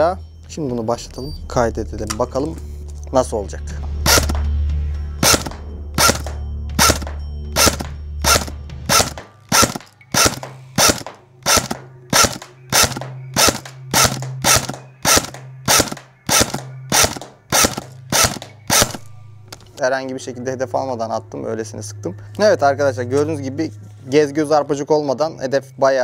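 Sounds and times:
airsoft gun shots snapping: 0:04.1 - 0:04.4, 0:05.2 - 0:19.0.

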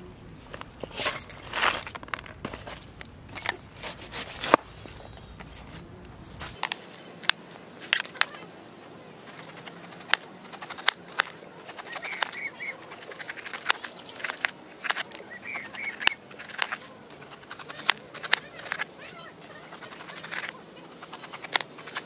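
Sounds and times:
bird chirping: 0:04.6 - 0:06.1, 0:11.7 - 0:21.6
knife cutting pineapple rind: 0:09.2 - 0:18.9, 0:19.5 - 0:22.0.

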